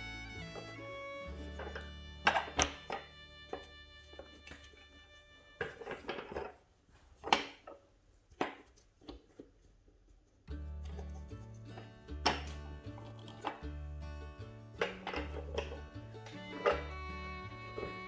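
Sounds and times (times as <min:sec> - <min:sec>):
background music: 0:00.0 - 0:03.1, 0:10.5 - 0:18.0
wooden board knocks and clatters: 0:01.6 - 0:04.6, 0:05.6 - 0:06.6, 0:07.2 - 0:09.5.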